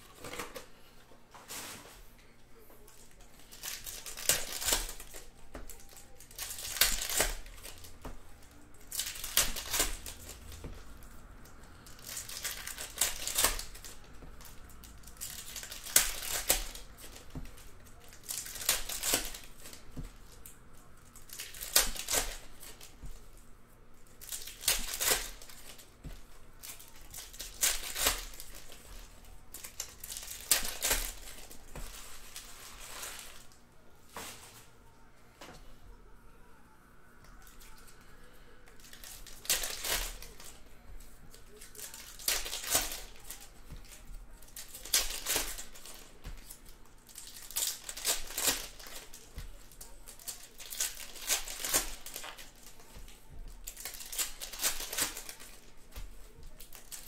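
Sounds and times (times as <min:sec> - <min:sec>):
card pack wrappers crinkling and tearing: 0:02.6 - 0:34.8, 0:37.4 - 0:57.0.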